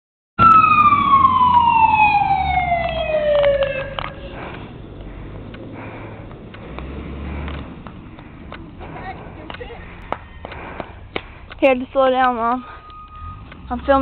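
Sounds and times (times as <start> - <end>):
fire engine siren winding down: 0.4 - 4.4, 12.6 - 13.7.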